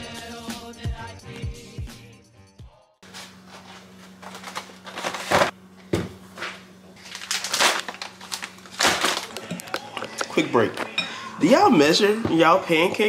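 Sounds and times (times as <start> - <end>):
packaging crinkling: 3.5 - 5.5, 6.4 - 10.9.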